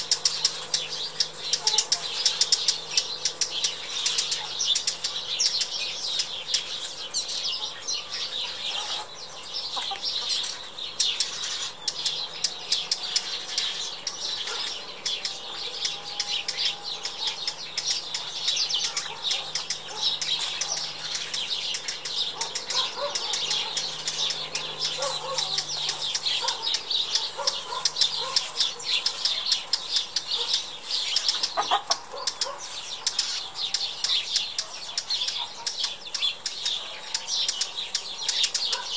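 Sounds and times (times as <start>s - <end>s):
hen clucking: 0.0s - 6.7s, 8.5s - 10.4s, 11.2s - 36.0s
small birds chirping: 0.0s - 38.9s.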